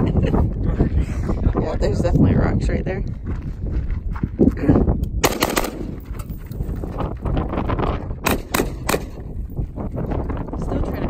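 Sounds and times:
wind rumble on microphone: 0.0 - 11.0
gunshots: 5.2 - 6.1, 8.2 - 9.2.

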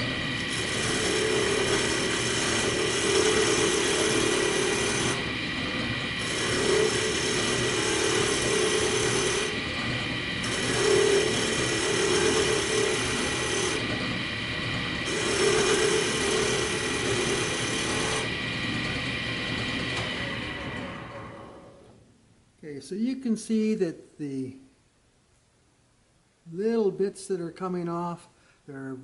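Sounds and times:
chisel cutting spinning wood: 0.0 - 21.0
wood lathe running: 0.0 - 21.7.

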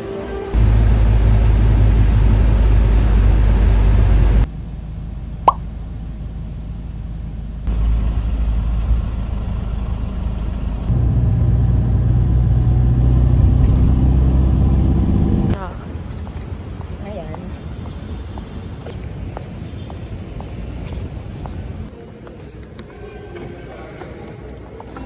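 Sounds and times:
low rumble: 0.6 - 15.6
rising squeak: 9.5 - 10.9.

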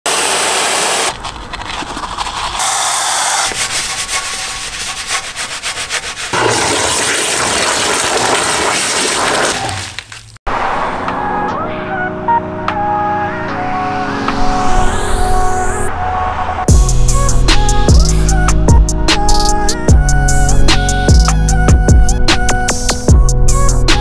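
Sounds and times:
scrubbing on car bodywork: 0.8 - 6.6.

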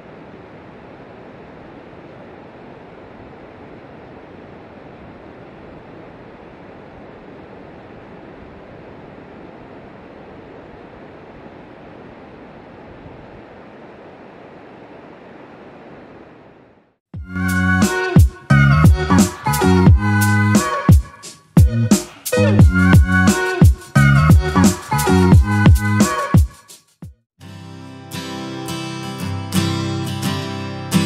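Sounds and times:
music with strong beat: 17.2 - 27.2.

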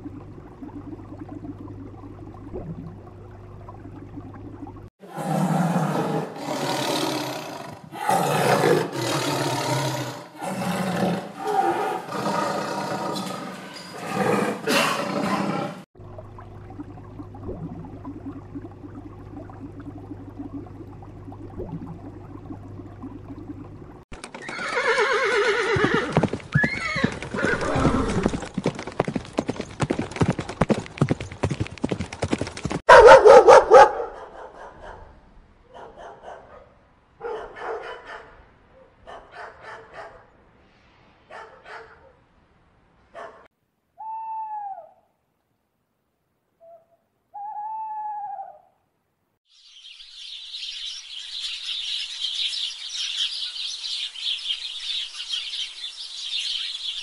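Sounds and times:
steady low hum: 0.0 - 4.9, 16.0 - 24.0
clatter of hooves: 24.1 - 24.8, 25.8 - 32.8
horses whinnying: 24.2 - 28.5
dog barking: 32.9 - 35.1, 35.7 - 40.3, 41.3 - 42.2, 43.1 - 43.5.

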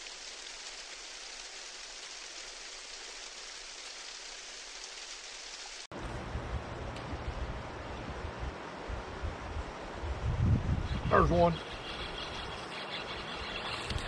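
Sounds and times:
faint river water: 0.0 - 14.0
rain-like hiss: 0.0 - 14.0
wind buffeting microphone: 6.4 - 11.4.

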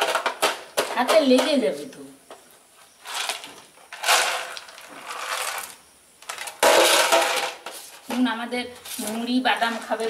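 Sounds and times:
plastic jar rattling on concrete: 0.0 - 1.6, 3.0 - 8.3.

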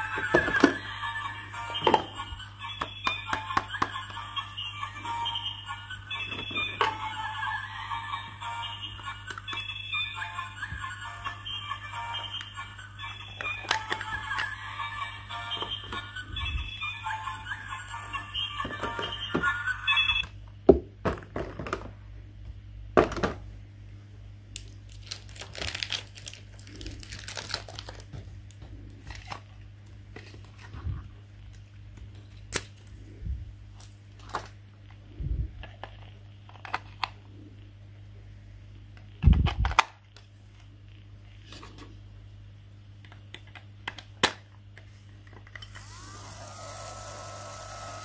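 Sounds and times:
toy electronic tune: 0.0 - 20.3
steady low hum: 0.0 - 43.9
plastic toys clicking and crinkling: 13.4 - 14.6, 24.6 - 29.5, 35.6 - 37.2.

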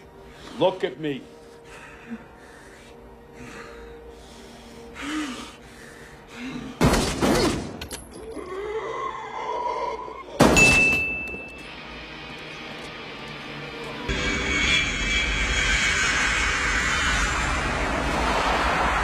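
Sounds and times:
man breathing heavily: 0.0 - 0.6, 1.2 - 6.8
high ringing tone: 10.6 - 12.0.

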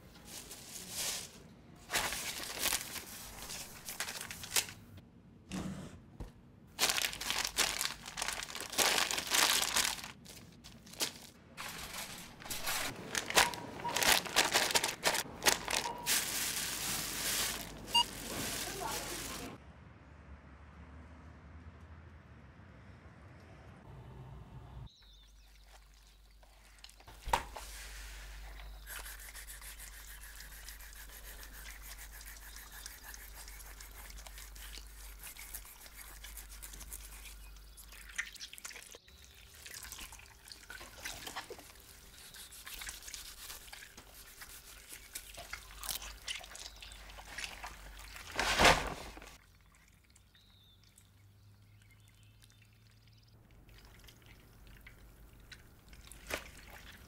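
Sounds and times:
wet squelching and rubbing: 25.5 - 49.8, 53.7 - 57.0.

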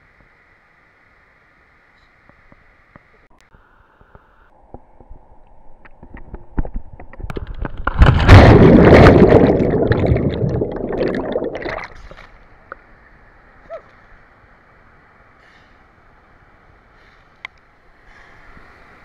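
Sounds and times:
churning bubbling underwater: 7.3 - 12.2
water splashing and gurgling: 7.3 - 12.4.

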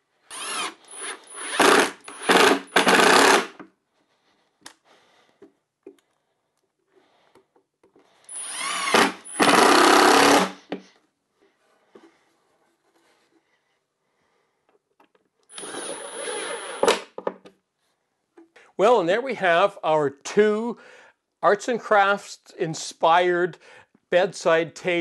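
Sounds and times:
impact driver driving screws: 0.3 - 3.7, 8.3 - 10.6, 15.5 - 17.1.

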